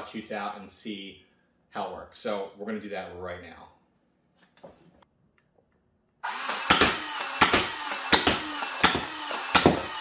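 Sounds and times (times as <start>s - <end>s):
toy blaster motor whirring: 6.2s - 10.0s.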